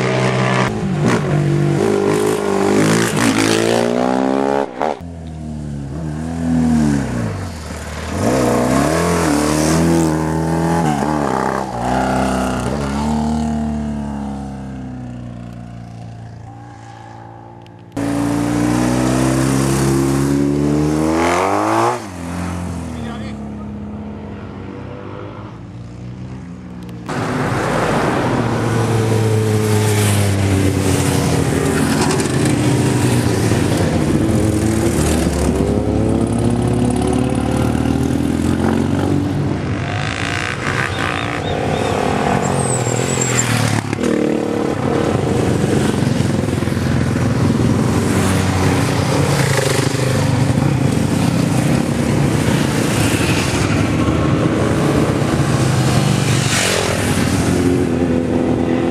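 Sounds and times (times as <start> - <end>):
racing motorcycle engines revving: 0.0 - 58.9.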